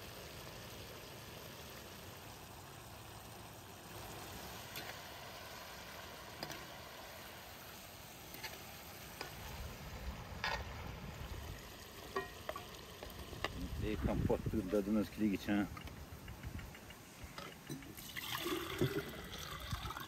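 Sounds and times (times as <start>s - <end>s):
food simmering and frying: 0.0s - 20.0s.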